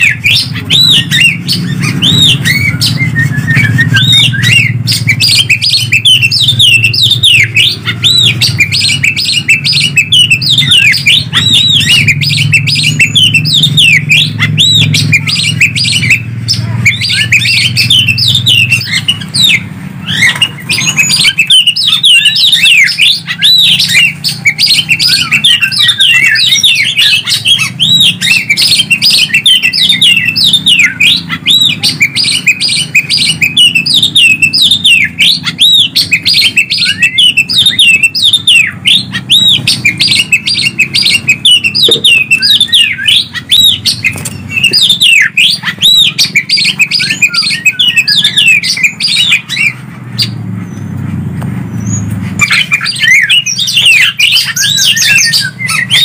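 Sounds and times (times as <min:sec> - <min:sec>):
recorded birdsong chirps and whistles: 0:00.0 - 0:56.0.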